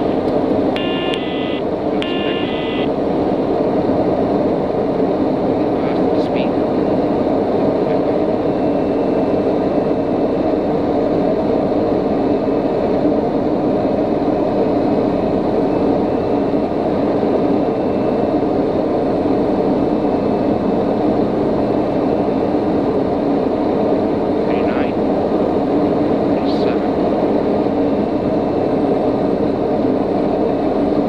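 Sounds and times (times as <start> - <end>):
airflow noise: 0.0 - 5.6
turboprop engine drone: 0.0 - 31.0.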